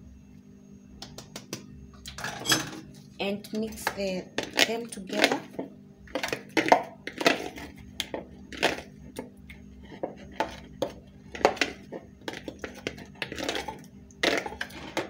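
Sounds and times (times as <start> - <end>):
metal spoon scraping plastic bowl: 3.7 - 15.0.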